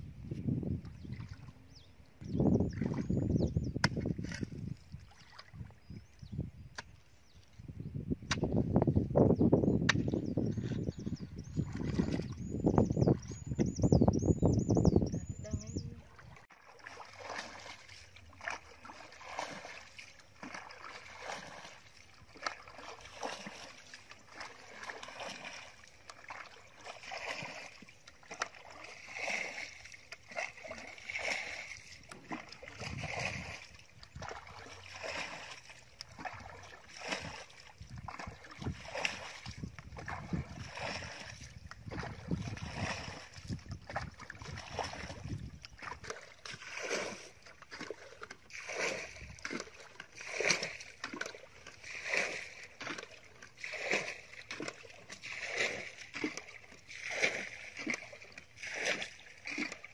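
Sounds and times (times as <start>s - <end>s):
water splashing from bucket: 16.2s - 59.9s.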